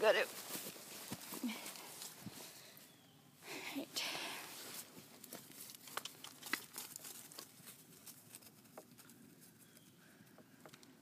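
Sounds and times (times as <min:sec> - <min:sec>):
footsteps through dry grass: 0:00.0 - 0:02.6, 0:04.5 - 0:09.8.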